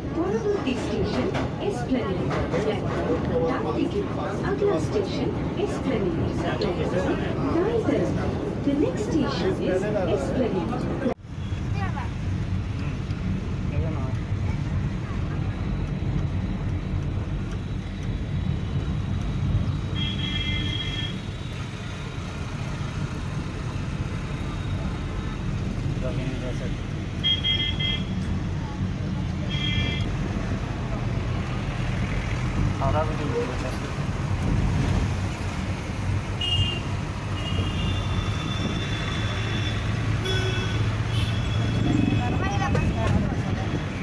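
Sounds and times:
car engine and road rumble: 0.0 - 44.0
vehicle horn: 20.0 - 21.2, 27.2 - 28.2, 29.5 - 30.1, 36.4 - 42.4.

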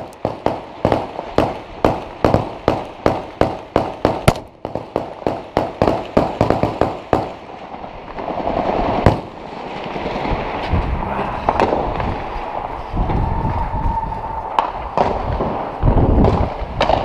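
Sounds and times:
gunshots: 0.0 - 7.5, 8.2 - 9.5
steady rushing noise: 0.0 - 17.0.

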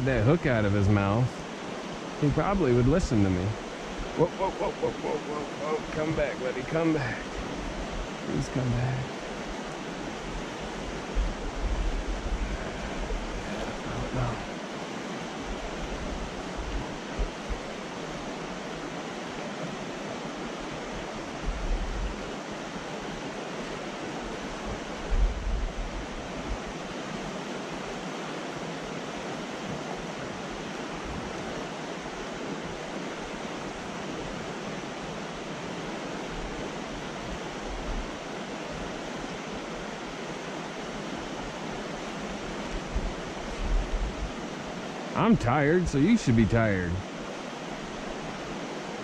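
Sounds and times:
stream rushing over rocks: 0.0 - 49.0.

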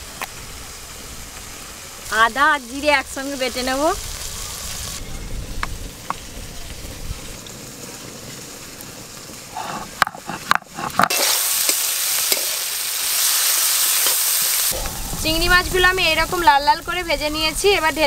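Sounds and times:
shrimp sizzling in hot oil: 0.0 - 18.0
stone grinding scrape: 9.6 - 11.3.

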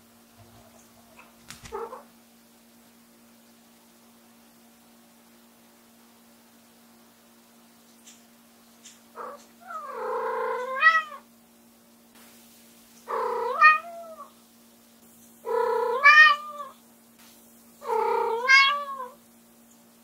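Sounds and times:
cat meowing loudly: 10.7 - 11.2, 13.1 - 14.3, 15.5 - 16.8, 17.8 - 19.2.

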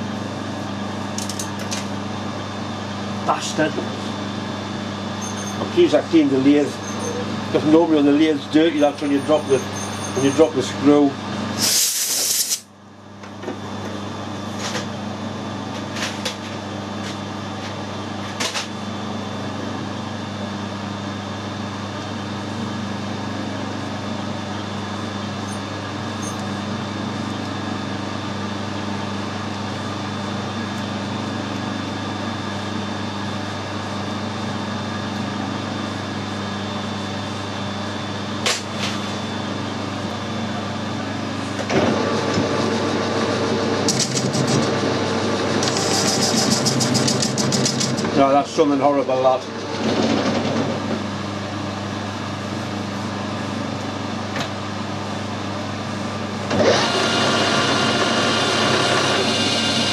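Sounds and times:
metal lathe cutting steel: 42.0 - 48.1, 56.5 - 59.9.

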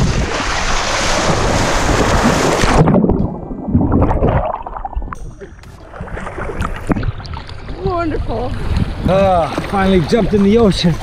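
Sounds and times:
underwater gurgling: 0.0 - 11.0
people splashing in water: 5.7 - 11.0.

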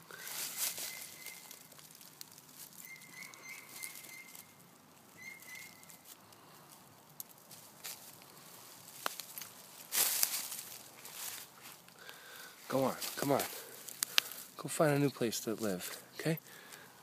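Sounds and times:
rustling in dry leaves: 0.0 - 17.0.

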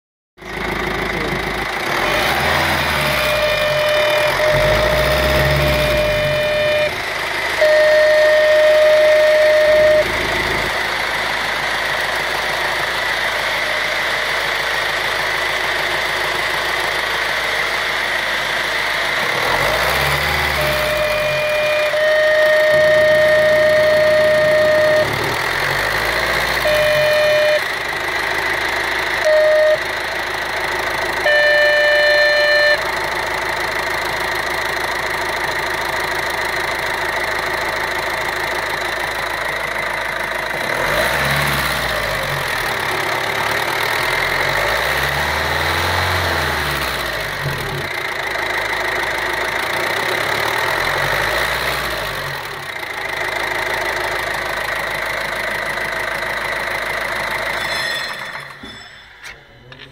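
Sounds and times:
car engine revving: 0.8 - 14.0, 19.2 - 29.8, 40.5 - 54.3
high whistle-like tone: 2.9 - 7.0, 7.6 - 10.3, 20.4 - 25.4, 26.6 - 27.7, 29.2 - 29.9, 31.3 - 32.8, 57.5 - 59.7.

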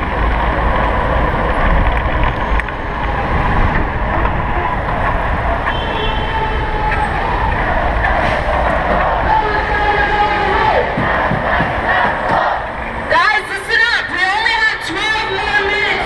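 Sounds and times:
wind rumbling on microphone: 0.0 - 10.1
city traffic noise: 0.0 - 16.0.

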